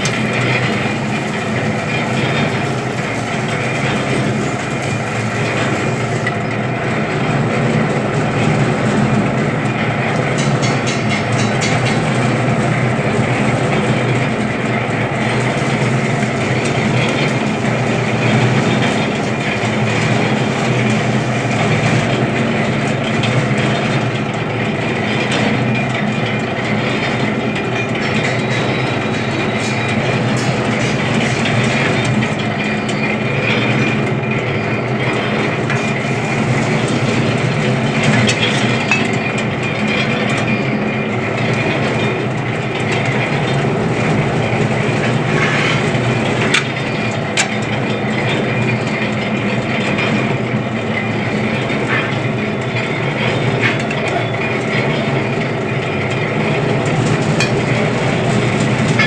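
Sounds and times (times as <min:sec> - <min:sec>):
machine motor humming: 0:00.0 - 0:06.4.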